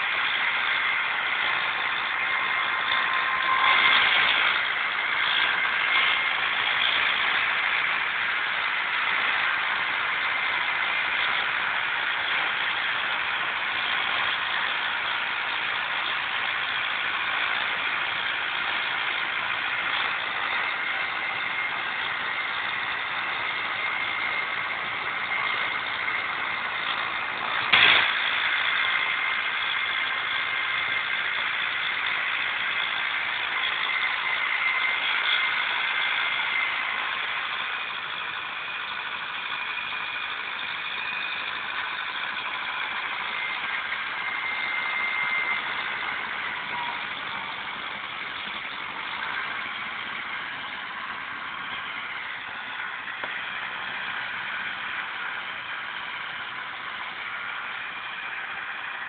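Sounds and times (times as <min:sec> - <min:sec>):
tractor diesel engine under load: 0:00.0 - 0:59.0.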